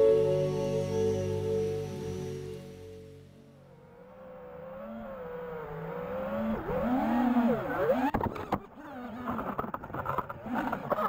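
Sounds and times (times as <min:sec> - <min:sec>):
quadcopter motors whining: 0:03.6 - 0:11.0.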